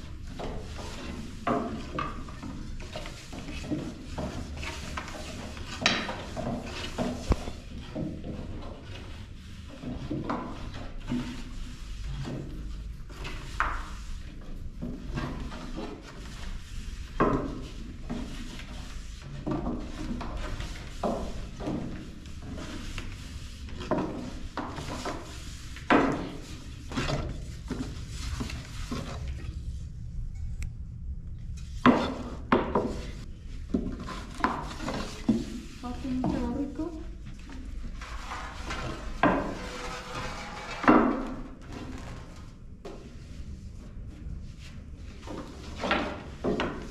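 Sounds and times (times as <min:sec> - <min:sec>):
steady low rumble: 0:26.6 - 0:33.7.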